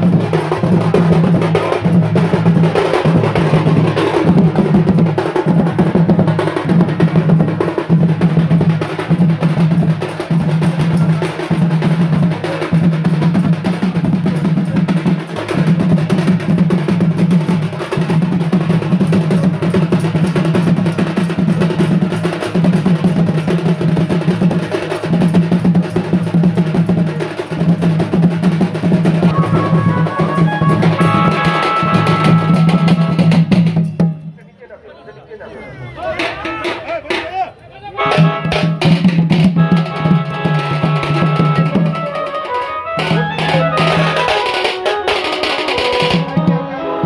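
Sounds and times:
fast drum rolls: 0:00.0 - 0:34.2, 0:38.1 - 0:46.6
held higher tones: 0:29.2 - 0:33.3, 0:40.3 - 0:47.0.

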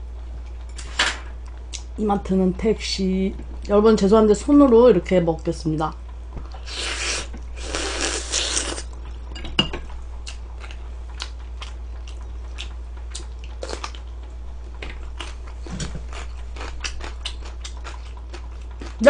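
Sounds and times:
steady low hum: 0:00.0 - 0:19.0
chewing and mouth smacks: 0:10.2 - 0:14.2, 0:14.9 - 0:19.0.

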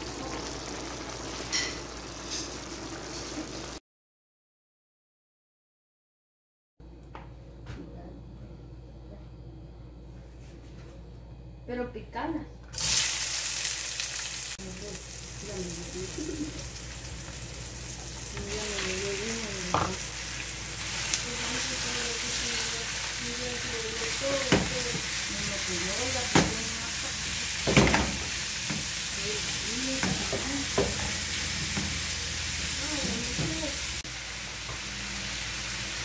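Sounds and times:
food sizzling in a frying pan: 0:00.0 - 0:03.8, 0:12.7 - 0:36.0.

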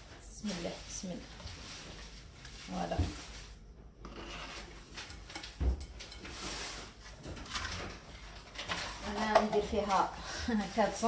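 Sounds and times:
spatula working cream cheese in bowl: 0:00.0 - 0:11.0
utensils clicking and rustling: 0:04.8 - 0:11.0.

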